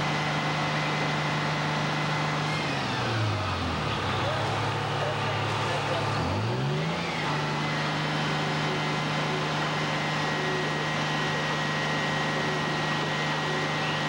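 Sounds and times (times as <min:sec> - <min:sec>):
fire truck engine running: 0:00.0 - 0:14.0.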